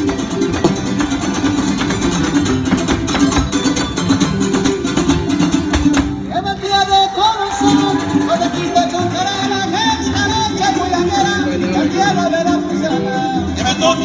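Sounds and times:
fast strummed string ensemble: 0.0s - 14.0s
person singing: 6.3s - 14.0s.

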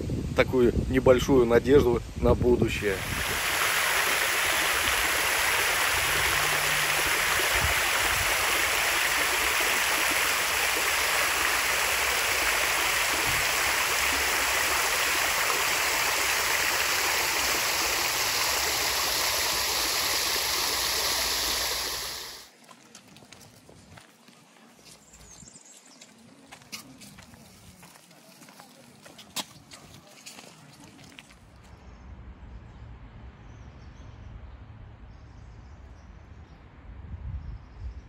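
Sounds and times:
fountain water splashing: 2.7s - 22.6s.

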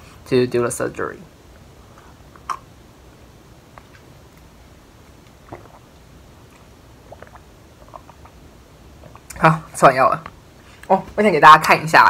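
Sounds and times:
soft swallowing: 5.2s - 9.4s.

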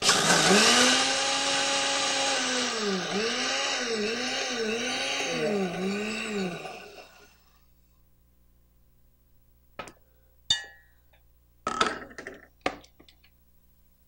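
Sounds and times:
blender grinding rice: 0.0s - 7.5s.

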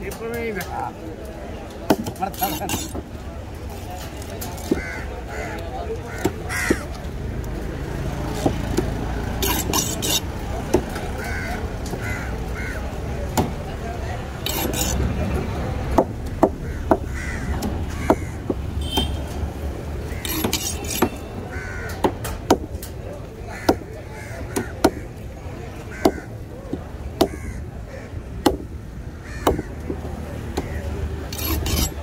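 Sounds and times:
knife chopping on wooden block: 20.2s - 21.2s.

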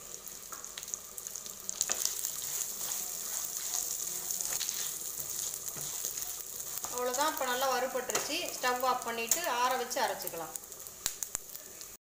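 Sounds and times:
spices sizzling in oil: 0.0s - 12.0s
wooden spatula scraping pan: 1.9s - 7.6s.

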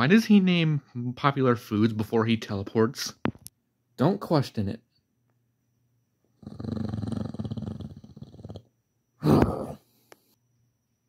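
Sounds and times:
tiger growling roar: 6.4s - 8.6s.

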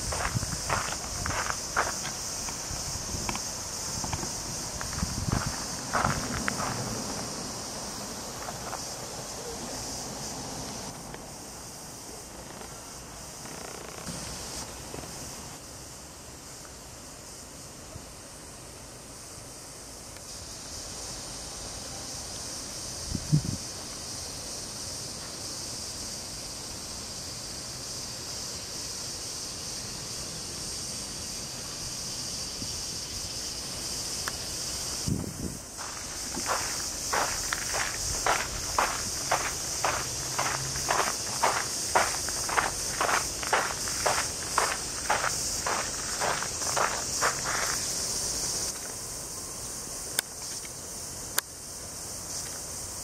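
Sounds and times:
footsteps: 0.0s - 7.3s, 8.3s - 9.0s, 35.8s - 47.9s
insect chorus drone: 0.0s - 53.0s.

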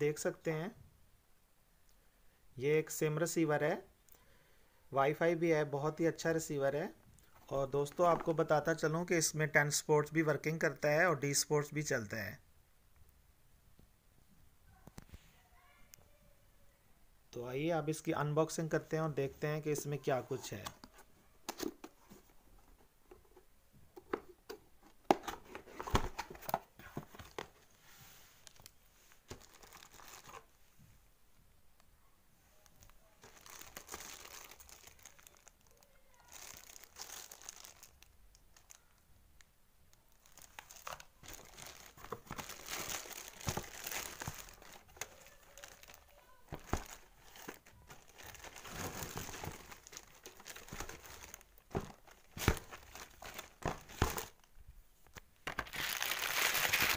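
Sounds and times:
plastic wrap crinkling: 28.4s - 30.5s, 32.7s - 39.0s, 40.0s - 54.5s, 55.4s - 56.9s.

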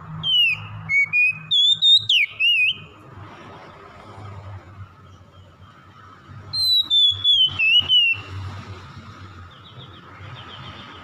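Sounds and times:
bird whistling: 0.2s - 3.0s, 6.5s - 8.3s.

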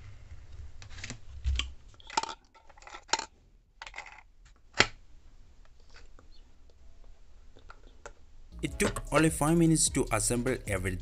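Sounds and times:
plastic parts clicking and clinking: 0.8s - 5.0s.

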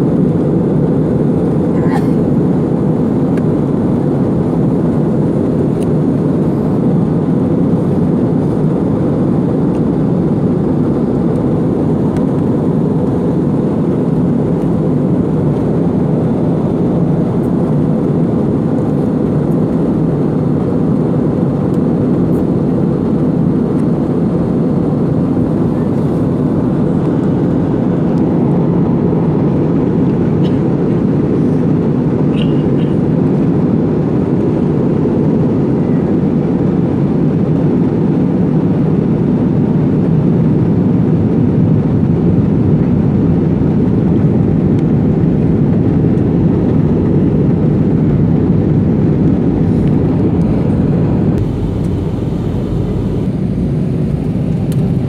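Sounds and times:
airliner engine noise: 0.0s - 55.0s
rushing air: 48.4s - 55.0s.

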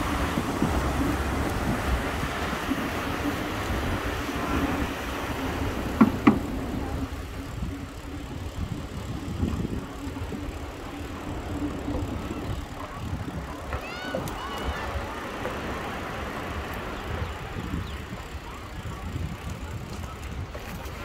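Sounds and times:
bicycle tyres on wooden boardwalk: 0.0s - 21.0s
sharp knocks: 6.0s - 6.5s.

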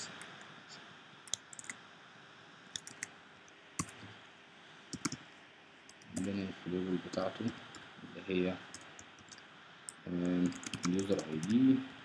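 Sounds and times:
faint steady hiss: 0.0s - 12.0s
keyboard keys clicking: 1.3s - 1.8s, 2.8s - 3.1s, 5.0s - 5.2s, 10.2s - 11.6s.

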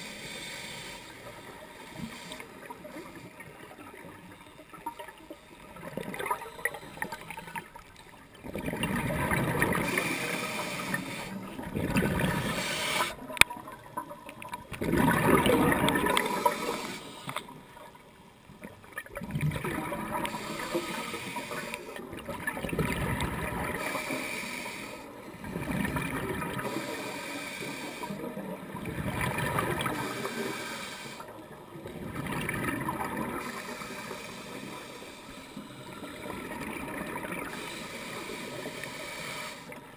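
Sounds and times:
diver exhaling bubbles underwater: 8.4s - 10.1s, 11.6s - 13.1s, 14.7s - 17.0s, 19.1s - 20.5s.

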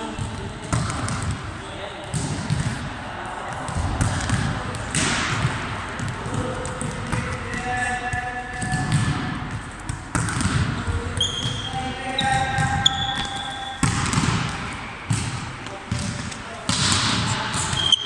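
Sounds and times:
volleyballs smacking and bouncing: 0.1s - 18.0s
shoes squeaking on court: 10.8s - 16.5s, 17.6s - 18.0s.

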